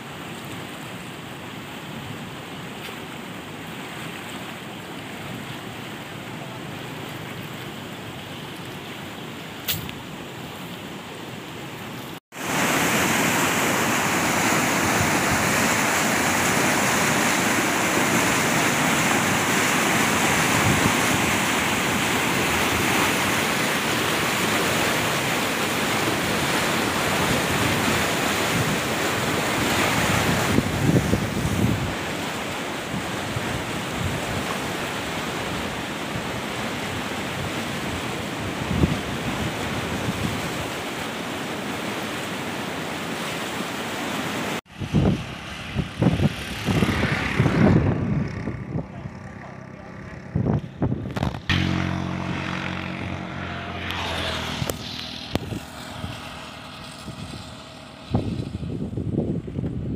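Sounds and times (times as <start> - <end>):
water gushing into stream: 12.4 - 35.4
low bumps: 44.8 - 59.8.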